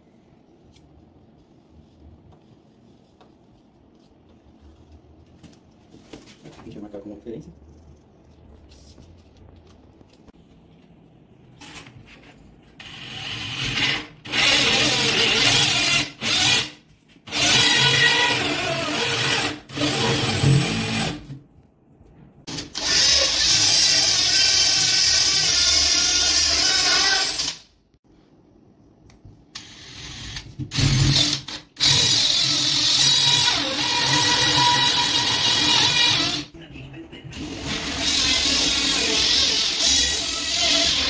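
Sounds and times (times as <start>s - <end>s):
cordless drill with hole saw: 12.8s - 21.3s, 22.5s - 27.6s, 29.6s - 36.5s, 37.4s - 41.0s.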